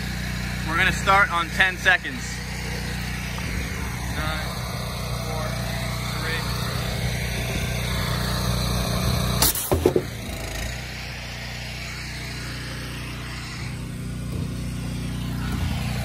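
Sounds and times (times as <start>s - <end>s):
pressure washer engine running: 0.0s - 16.0s
sharp knock: 9.4s - 10.2s
handling bumps: 9.4s - 10.6s, 14.0s - 16.0s.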